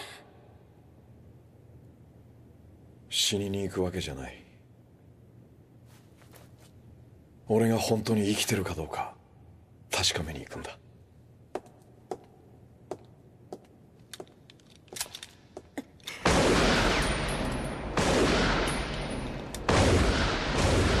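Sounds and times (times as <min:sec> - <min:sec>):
handgun shots echoing: 0:16.2 - 0:21.0.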